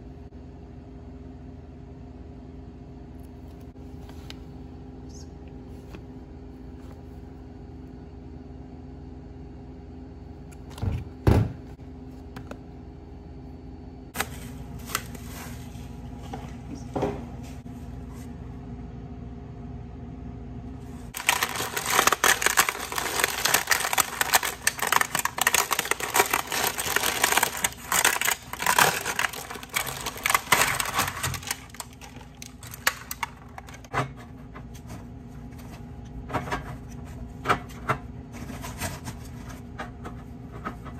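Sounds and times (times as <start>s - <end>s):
steady low hum: 0.0s - 40.9s
plastic bag crinkling: 21.1s - 33.9s.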